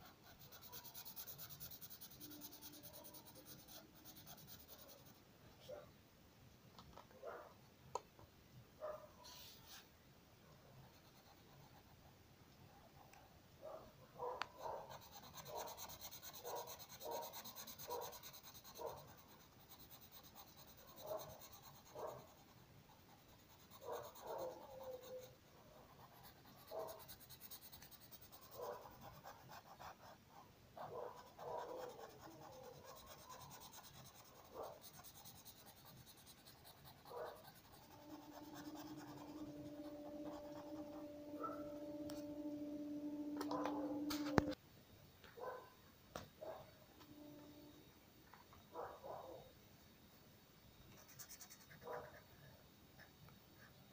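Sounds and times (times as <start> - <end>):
marker scribbling on paper: 0.0 - 5.2, 14.6 - 30.2, 30.9 - 41.0
steady low hum: 37.4 - 44.6.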